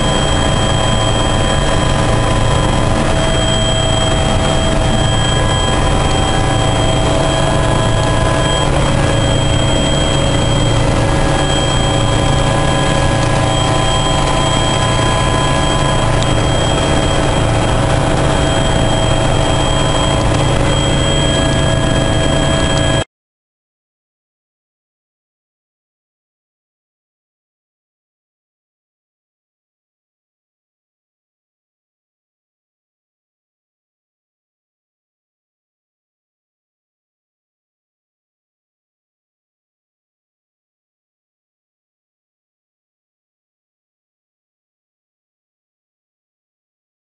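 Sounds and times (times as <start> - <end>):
helicopter cabin drone: 0.0 - 23.1.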